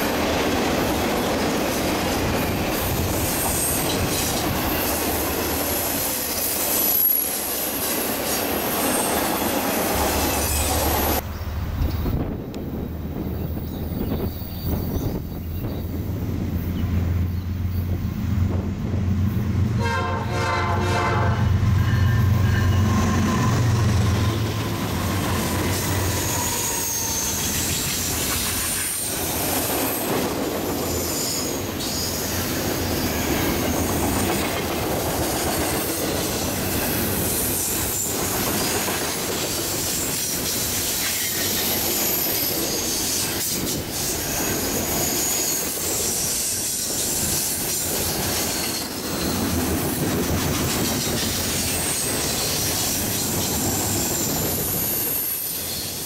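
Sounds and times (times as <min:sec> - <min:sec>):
train wheels rumbling and clattering: 0:00.0 - 0:56.0
faint high wheel squeal: 0:10.1 - 0:12.2, 0:24.8 - 0:29.1, 0:30.7 - 0:34.0, 0:44.2 - 0:47.5, 0:48.3 - 0:49.6
locomotive horn: 0:19.8 - 0:23.9.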